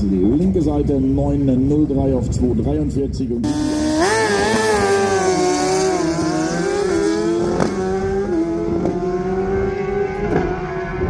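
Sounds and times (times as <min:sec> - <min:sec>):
motorcycle engine revving high: 0:03.4 - 0:11.0.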